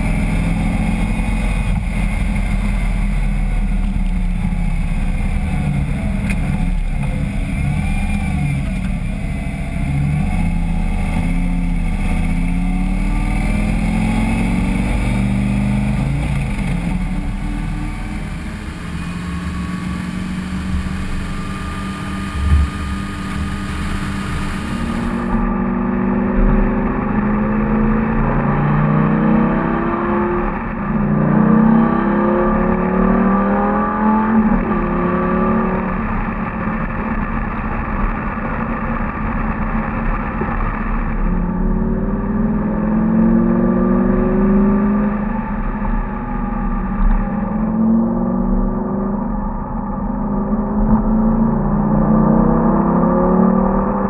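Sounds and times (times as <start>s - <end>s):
car engine revving while driving: 0.0s - 54.0s
thump: 22.4s - 22.7s.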